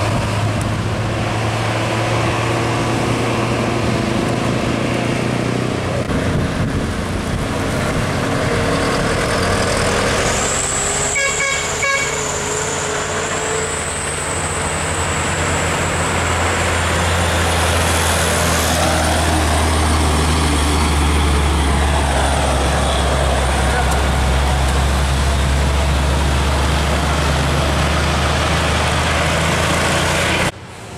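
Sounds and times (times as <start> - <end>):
diesel truck engines passing: 0.0 - 30.9
truck engine low drone: 0.0 - 30.9
truck horn toots: 11.0 - 12.7.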